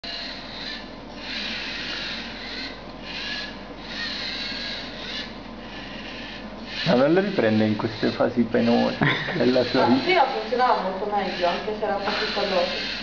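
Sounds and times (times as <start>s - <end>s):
robot servo motors whirring: 0.0s - 13.0s.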